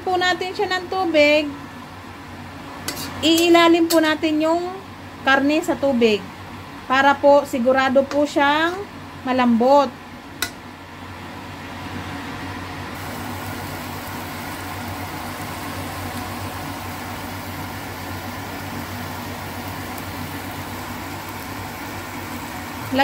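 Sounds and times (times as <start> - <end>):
wok cooking hiss: 2.4 - 9.6, 12.8 - 23.0.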